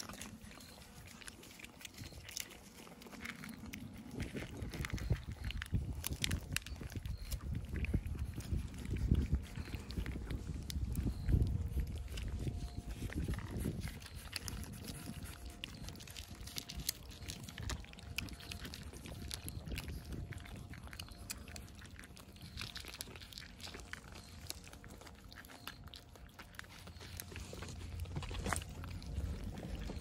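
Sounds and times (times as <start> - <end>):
cats eating and licking: 0.0 - 30.0
low rumble: 26.9 - 30.0.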